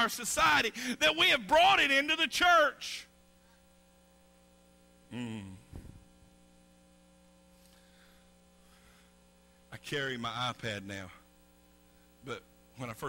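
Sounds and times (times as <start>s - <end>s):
electrical mains hum: 0.0s - 13.0s
short vocal sound: 5.1s - 6.1s.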